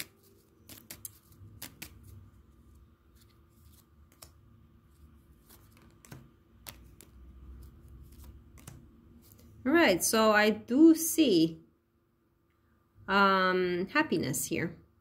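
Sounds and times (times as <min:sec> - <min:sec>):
cards tapping on wooden table: 0:05.6 - 0:07.1.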